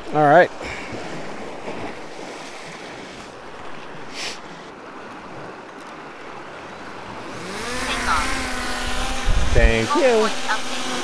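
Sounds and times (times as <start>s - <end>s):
water lapping against kayak: 0.0s - 11.0s
wind on microphone: 7.0s - 11.0s.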